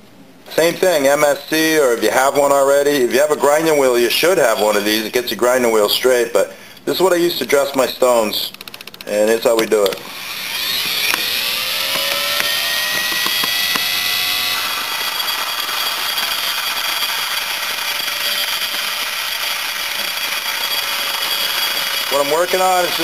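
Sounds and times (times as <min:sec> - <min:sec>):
rotary tool whining: 0:03.5 - 0:05.2, 0:10.0 - 0:23.0
gritty grinding hiss: 0:09.0 - 0:23.0.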